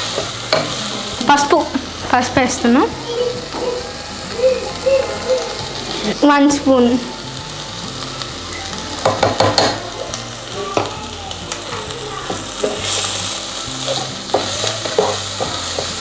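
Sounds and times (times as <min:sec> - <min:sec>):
onions sizzling in hot oil: 0:00.0 - 0:16.0
spoon clinking against pot: 0:13.9 - 0:16.0.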